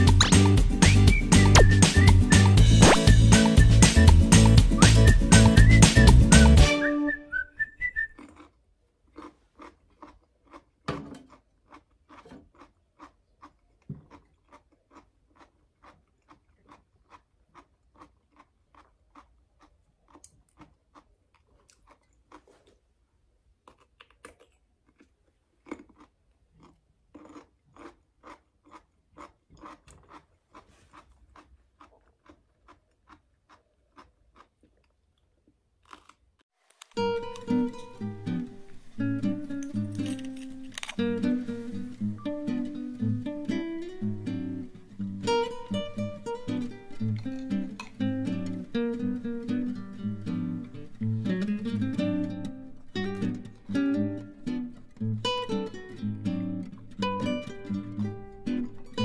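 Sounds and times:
person chewing crunchy food: 7.9 - 51.5.

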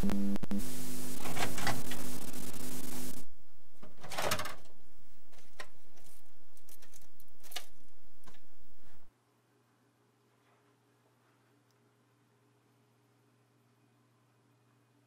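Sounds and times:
buzzing hum: 0.0 - 9.1.

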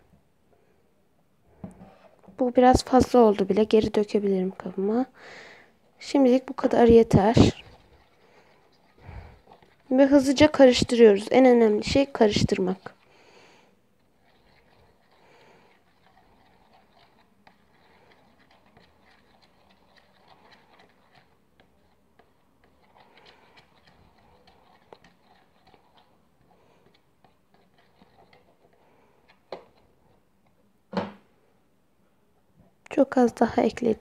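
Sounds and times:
stick stirring slime in bowl: 5.8 - 30.7.

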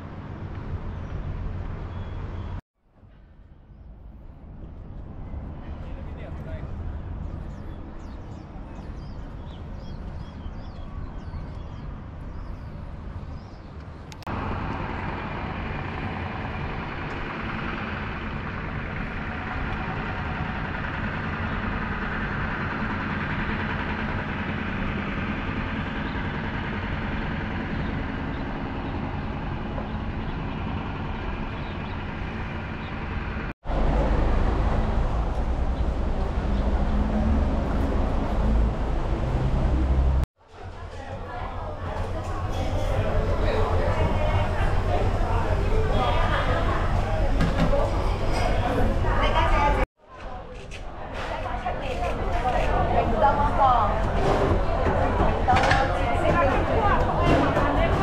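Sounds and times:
road traffic hum: 0.0 - 58.0
loud low rumble: 14.3 - 49.9.

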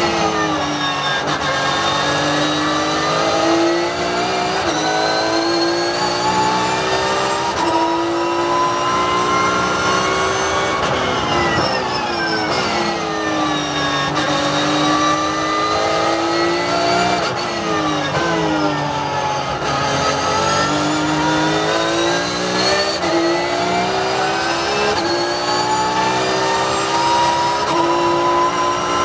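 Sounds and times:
race car engine revving: 0.0 - 29.0.

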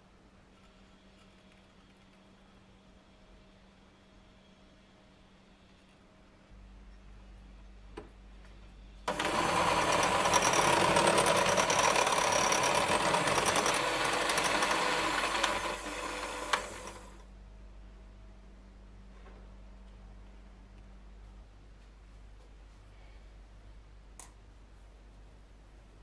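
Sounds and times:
electric hand mixer whisking: 9.1 - 17.2.

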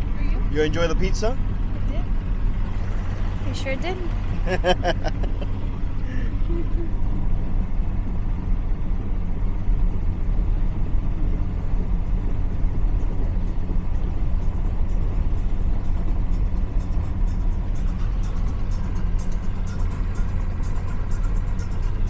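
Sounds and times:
speedboat engine rumbling: 0.0 - 22.0
water noise: 2.6 - 7.6.

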